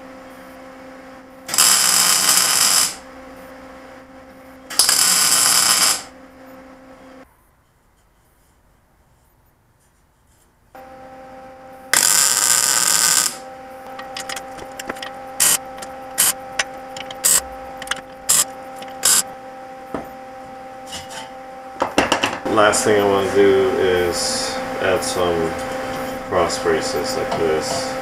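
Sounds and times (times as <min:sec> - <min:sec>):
steady hum: 0:00.0 - 0:28.0
electric arc weld crackling: 0:01.4 - 0:03.5, 0:04.7 - 0:06.2, 0:11.9 - 0:19.4.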